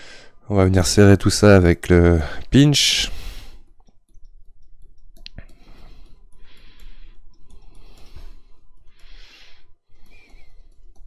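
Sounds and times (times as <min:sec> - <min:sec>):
stylus scratching on tablet: 0:04.2 - 0:11.0.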